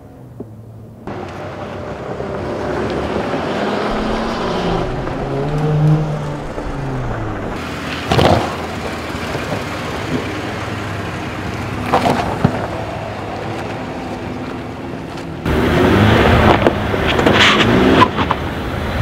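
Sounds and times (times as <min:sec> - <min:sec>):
engine running at low revs: 0:00.6 - 0:14.0
engine revving: 0:02.0 - 0:10.0, 0:15.4 - 0:18.2
wind on microphone: 0:03.3 - 0:07.6.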